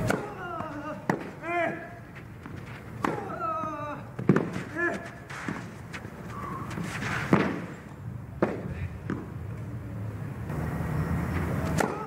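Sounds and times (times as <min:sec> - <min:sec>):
racket striking a serve: 0:00.0 - 0:00.4, 0:03.0 - 0:03.4, 0:04.2 - 0:05.7, 0:06.6 - 0:07.8, 0:11.6 - 0:12.0
tennis ball hits: 0:00.0 - 0:01.8, 0:02.4 - 0:03.5, 0:04.2 - 0:05.7, 0:06.6 - 0:07.8, 0:11.6 - 0:12.0.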